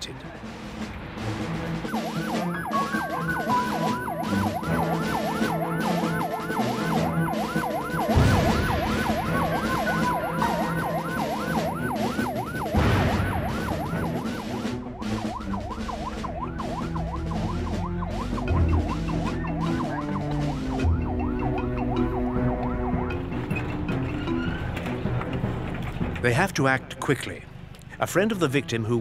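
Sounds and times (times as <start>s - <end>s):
vehicle noise: 0.0s - 28.1s
electronic siren yelping: 1.8s - 24.1s.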